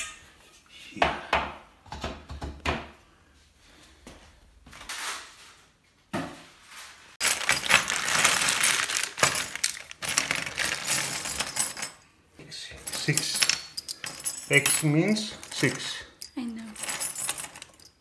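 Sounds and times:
plastic bag crinkling: 7.2 - 11.3
metal screws clinking: 7.2 - 12.0, 12.8 - 18.0.

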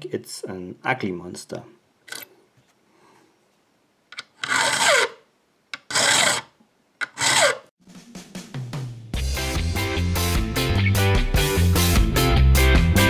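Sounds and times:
file rasping on metal key: 4.2 - 5.2, 5.8 - 7.7.

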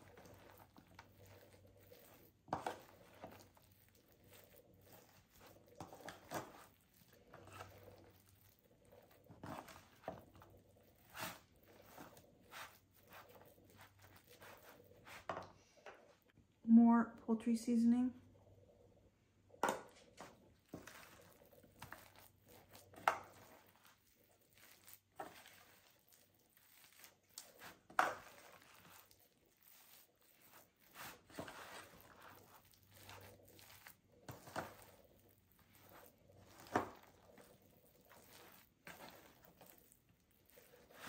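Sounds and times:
foil pan crinkling and scraping: 0.0 - 15.3, 20.2 - 41.0.

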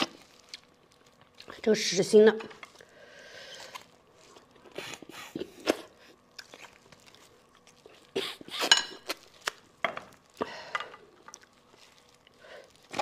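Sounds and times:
chewing: 3.7 - 9.6, 11.1 - 13.0
wet sucking and slurping: 4.6 - 6.8.

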